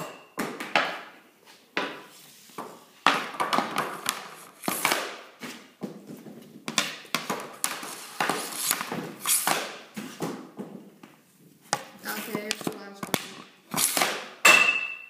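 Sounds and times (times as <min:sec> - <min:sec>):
hockey stick striking board: 0:03.0 - 0:05.3, 0:06.7 - 0:10.4, 0:11.7 - 0:15.0.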